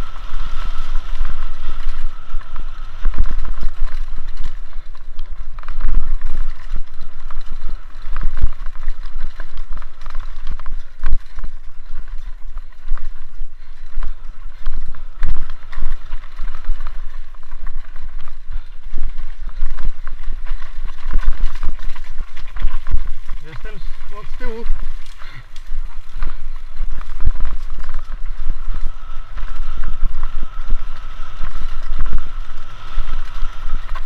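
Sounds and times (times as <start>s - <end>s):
wind buffeting microphone: 0.0s - 34.0s
bike clattering over rocks: 3.1s - 28.7s.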